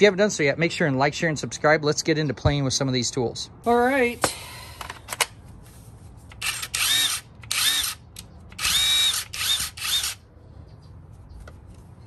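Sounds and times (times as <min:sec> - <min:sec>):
impact wrench whining: 0:06.3 - 0:10.2.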